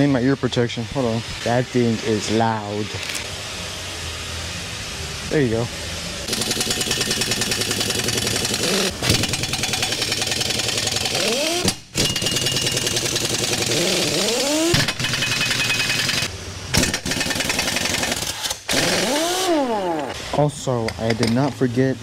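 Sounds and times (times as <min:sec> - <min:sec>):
pneumatic impact wrench hammering: 0:06.3 - 0:20.2.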